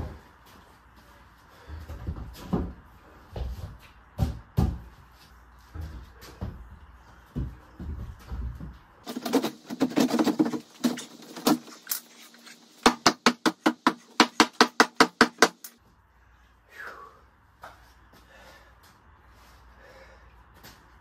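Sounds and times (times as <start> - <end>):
wooden board clattering: 9.0 - 11.8.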